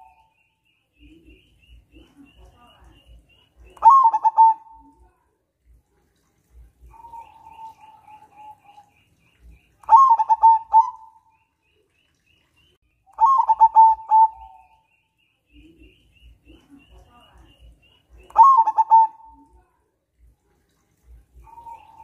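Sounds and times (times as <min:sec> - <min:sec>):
faint high chirps: 0:00.0 - 0:05.2, 0:21.3 - 0:22.0
dove cooing: 0:03.8 - 0:05.0, 0:06.8 - 0:08.9, 0:09.8 - 0:11.2, 0:13.2 - 0:14.8, 0:18.3 - 0:19.6, 0:21.4 - 0:22.0.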